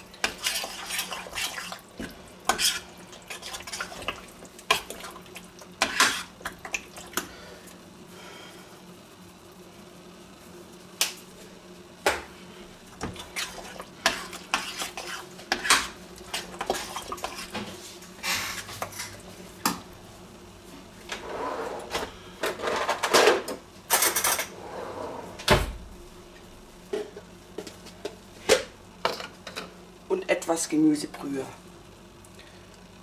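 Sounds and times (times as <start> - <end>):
spoon scraping pot: 0.2 - 1.8, 13.2 - 17.6.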